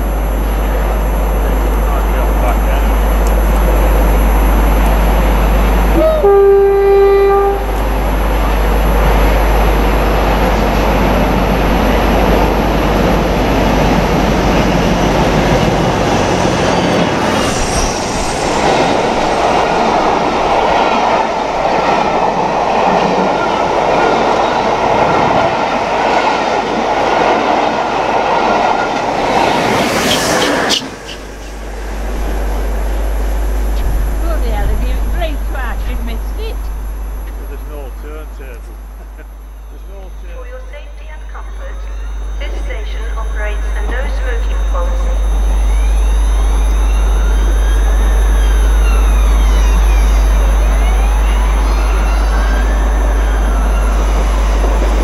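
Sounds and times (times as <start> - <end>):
train passing: 0.0 - 55.0
train horn: 5.9 - 8.0.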